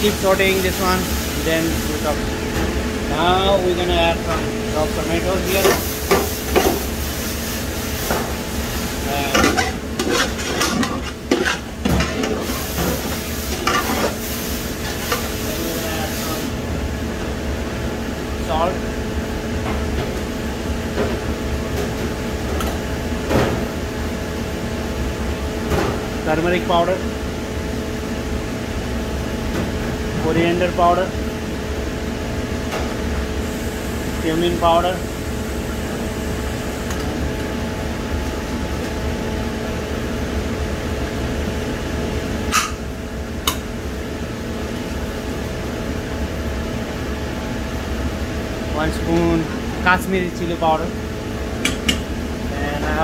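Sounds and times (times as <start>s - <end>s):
kitchen hum and hiss: 0.0s - 53.0s.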